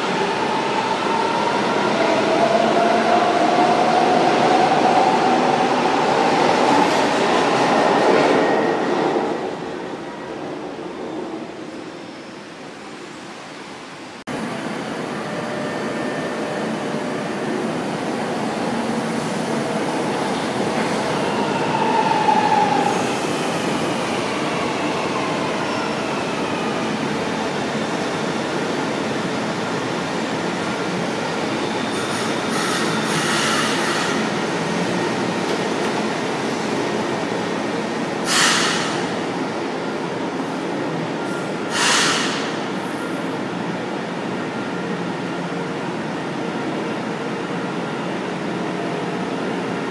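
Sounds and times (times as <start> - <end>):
air hiss bursts: 38.3 - 39.0, 41.7 - 42.4.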